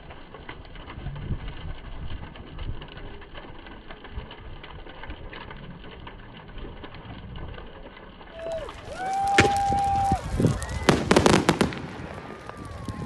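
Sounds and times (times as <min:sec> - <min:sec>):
bonfire flame rushing: 0:00.0 - 0:13.0
burning wood crackling and popping: 0:00.0 - 0:13.0.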